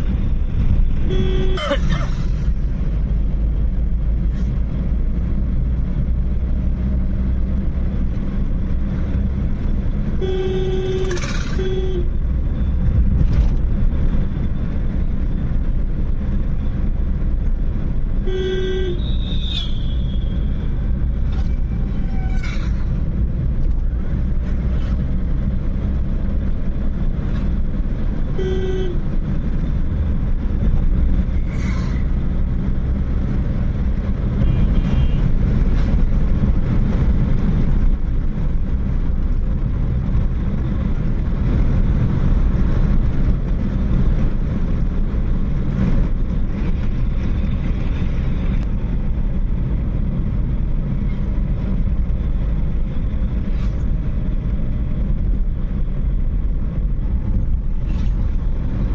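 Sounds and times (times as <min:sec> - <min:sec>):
car engine and tyre rumble: 0:00.0 - 0:58.9
car horn toots: 0:01.0 - 0:01.9, 0:10.2 - 0:12.1, 0:18.2 - 0:20.3, 0:28.4 - 0:29.0.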